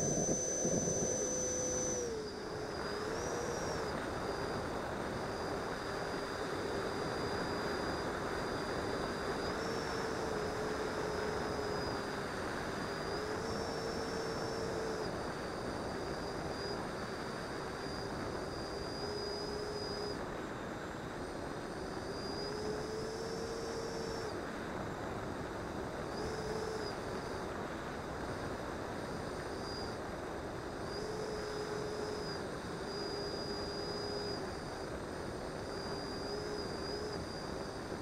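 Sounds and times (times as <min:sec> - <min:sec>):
electric ducted fan whine: 0:00.0 - 0:38.0.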